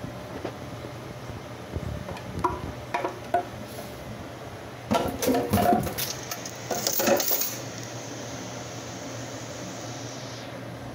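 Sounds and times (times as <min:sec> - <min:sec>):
kitchen things clattering and rustling: 0:04.9 - 0:07.6.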